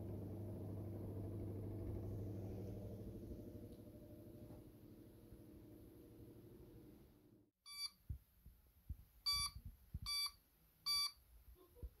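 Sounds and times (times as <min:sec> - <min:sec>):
electric fan motor hum: 0:00.0 - 0:07.0
inverter beeping: 0:07.7 - 0:08.0, 0:09.3 - 0:11.2.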